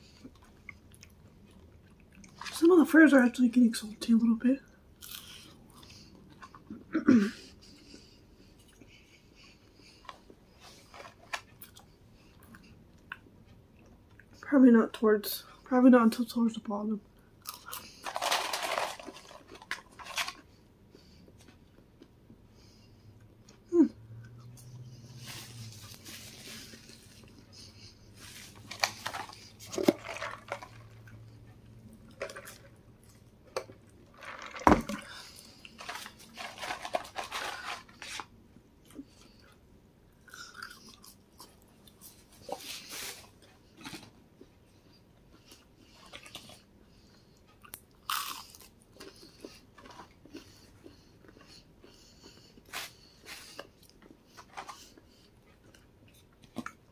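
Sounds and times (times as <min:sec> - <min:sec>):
chewing crunchy fries: 0:00.0 - 0:02.7, 0:04.9 - 0:14.4, 0:17.2 - 0:56.9
paper carton crinkling: 0:18.0 - 0:20.4, 0:28.2 - 0:30.9, 0:35.8 - 0:38.3.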